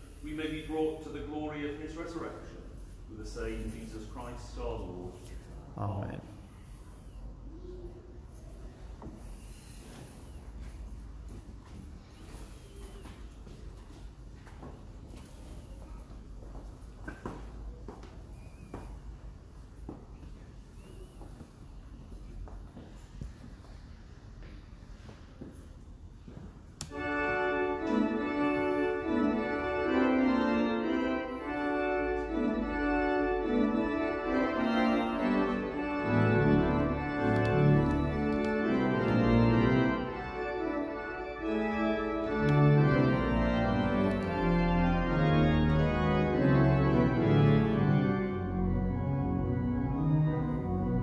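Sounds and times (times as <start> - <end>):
church organ chords: 0.0 - 5.5, 26.9 - 51.0
deep organ bass notes: 27.0 - 51.0.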